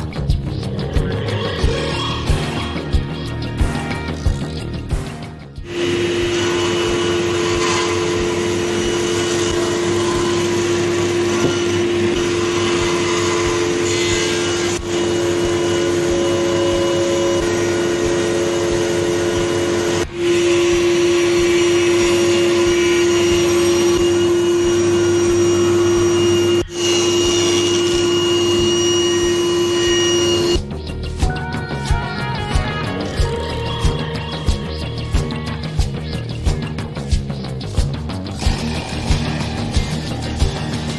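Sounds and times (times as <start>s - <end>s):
table saw cutting wood: 5.6s - 30.6s, 38.4s - 40.9s.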